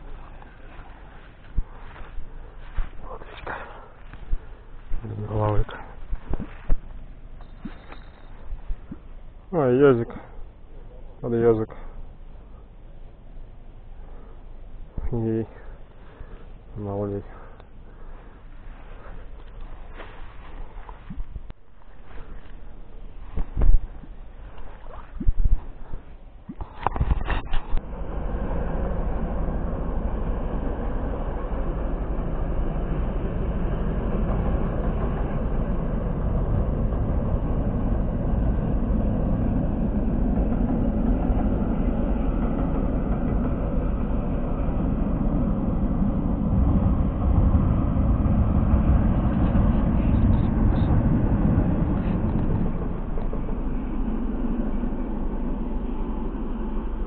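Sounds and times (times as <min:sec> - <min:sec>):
train rumbling over bridge: 0:11.3 - 0:26.4, 0:27.4 - 0:57.0.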